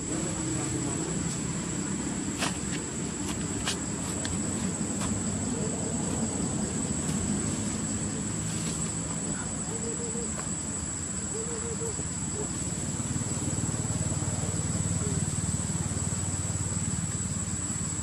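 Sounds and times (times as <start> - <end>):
steady low rumble: 0.0 - 9.9
high-pitched insect drone: 0.0 - 18.0.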